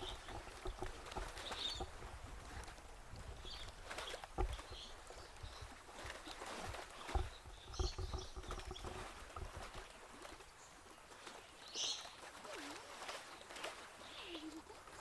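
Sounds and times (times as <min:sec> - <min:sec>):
low rumbling bumps: 0:06.5 - 0:09.8.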